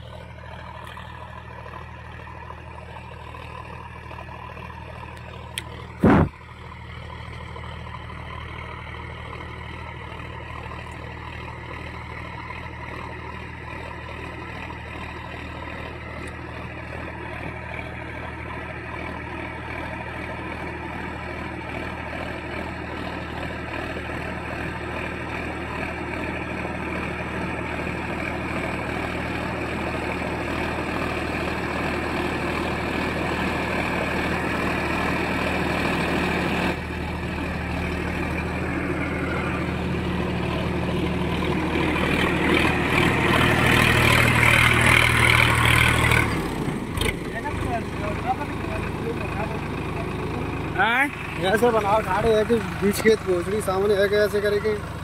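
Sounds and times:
tractor diesel engine running: 0:00.0 - 0:55.0
sharp knock: 0:06.0 - 0:06.3.

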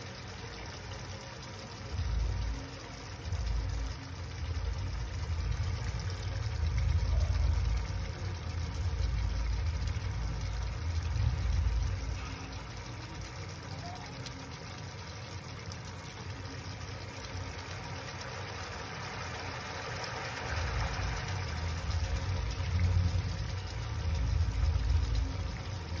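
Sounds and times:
curry simmering and bubbling: 0:00.0 - 0:26.0
gas burner rumble: 0:00.0 - 0:26.0.

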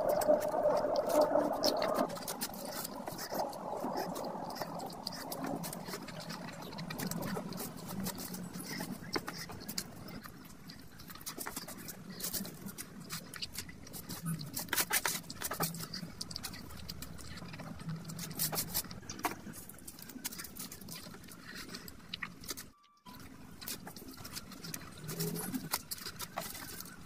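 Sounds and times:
fingers squishing food: 0:00.0 - 0:27.0
wet chewing and lip smacks: 0:00.0 - 0:27.0.

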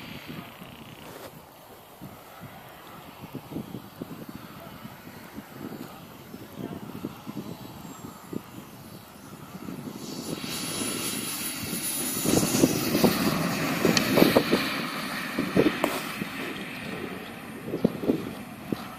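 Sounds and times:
jet turbine hiss: 0:00.0 - 0:18.9
low crackling thumps: 0:15.3 - 0:17.1.

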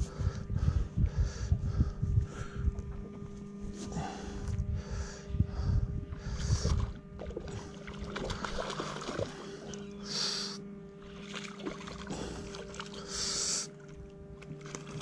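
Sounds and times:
wind buffeting microphone: 0:00.0 - 0:07.2
boat motor humming: 0:00.0 - 0:15.0.

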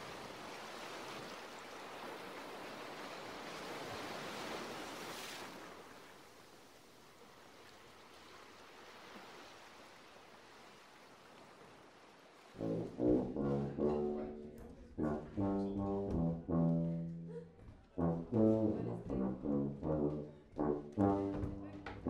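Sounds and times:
waves washing on shore: 0:00.0 - 0:12.6.

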